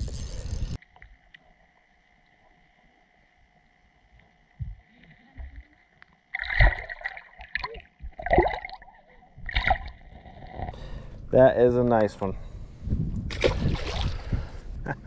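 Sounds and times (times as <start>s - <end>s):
faint steady whine: 0.0s - 8.2s, 8.9s - 15.0s
soft low thumps: 4.6s - 4.8s, 12.5s - 15.0s
water splashing and gurgling: 4.6s - 10.8s, 13.3s - 14.6s.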